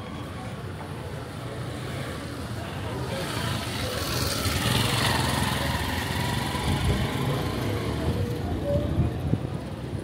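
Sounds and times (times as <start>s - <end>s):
small motorcycle engine passing: 3.2s - 8.4s.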